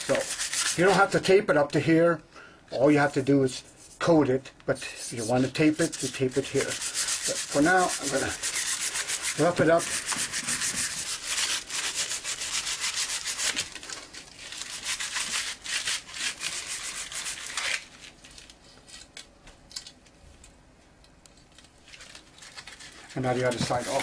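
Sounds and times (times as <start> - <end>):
sandpaper rubbing: 0.0 - 1.1, 5.1 - 17.9, 22.0 - 24.0.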